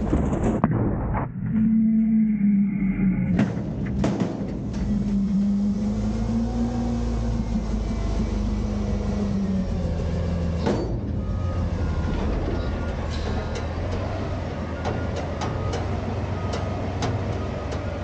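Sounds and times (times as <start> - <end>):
hydraulic pump hum: 1.6 - 11.2
garbage truck engine revving: 1.6 - 18.0.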